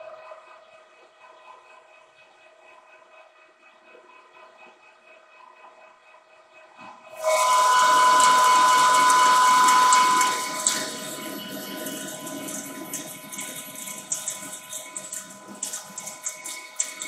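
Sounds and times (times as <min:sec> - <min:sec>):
metal chips ticking: 0:07.2 - 0:17.0
metal lathe cutting: 0:07.2 - 0:17.0.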